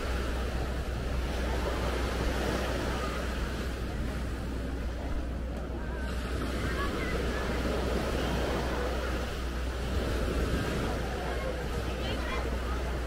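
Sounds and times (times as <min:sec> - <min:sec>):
ocean surf washing on beach: 0:00.0 - 0:13.0
wind rumble on microphone: 0:00.0 - 0:13.0.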